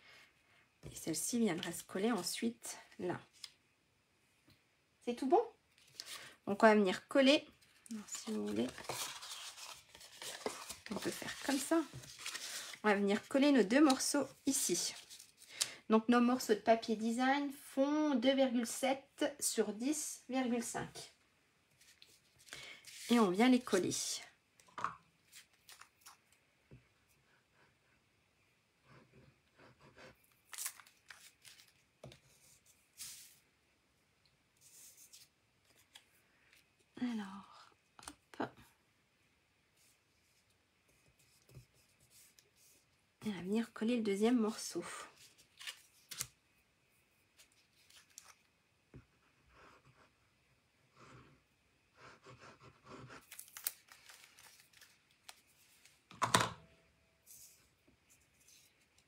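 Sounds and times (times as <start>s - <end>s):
paper rustling: 7.7s - 15.5s, 21.8s - 23.8s, 30.4s - 33.4s, 45.2s - 46.3s, 47.4s - 48.5s, 53.2s - 56.0s.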